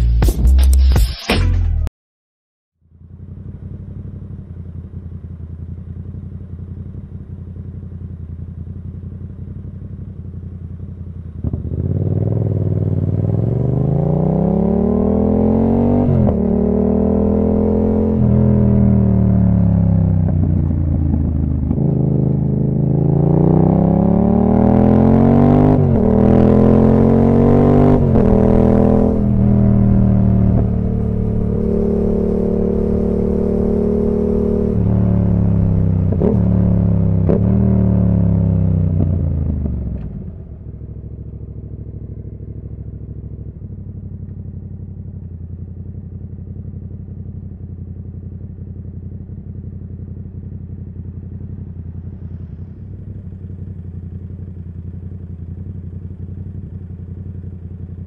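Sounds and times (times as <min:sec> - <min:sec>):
motorcycle engine accelerating: 0:02.8 - 0:58.0.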